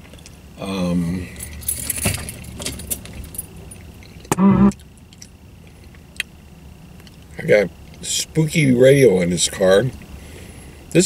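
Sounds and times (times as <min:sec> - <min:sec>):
light metallic jingling: 0:01.3 - 0:04.2.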